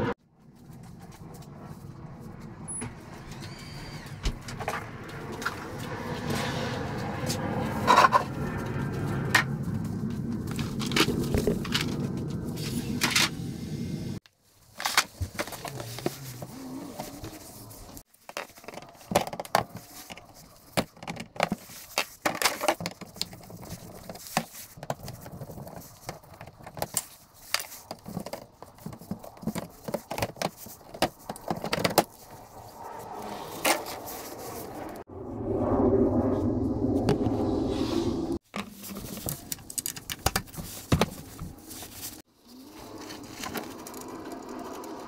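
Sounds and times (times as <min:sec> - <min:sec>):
plastic cover being handled: 0:38.4 - 0:44.1
plastic fasteners clicking: 0:38.5 - 0:41.2.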